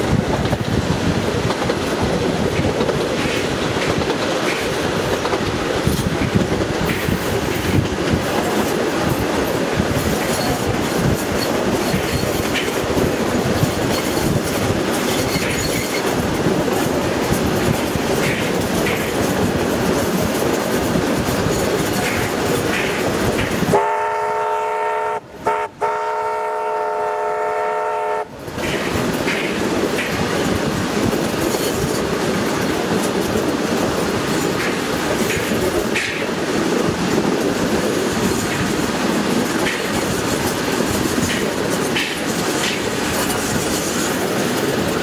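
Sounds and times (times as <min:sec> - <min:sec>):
wheels clicking over rail joints: 0:00.0 - 0:23.8, 0:28.3 - 0:45.0
train rumbling: 0:00.0 - 0:45.0
train whistle chord: 0:23.7 - 0:28.3.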